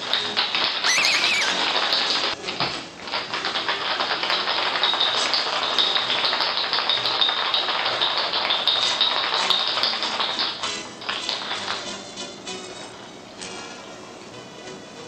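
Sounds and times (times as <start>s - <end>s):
ice rattling in cocktail shaker: 3.0s - 11.9s.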